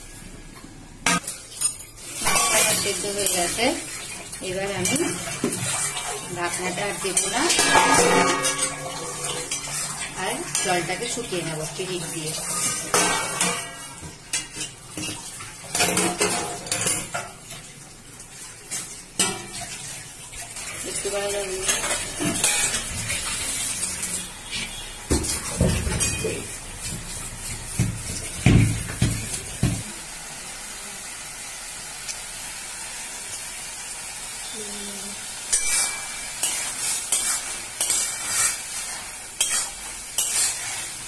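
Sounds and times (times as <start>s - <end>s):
food sizzling: 0.0s - 41.0s
metal spatula scraping wok: 2.0s - 15.2s, 20.8s - 27.8s, 35.5s - 41.0s.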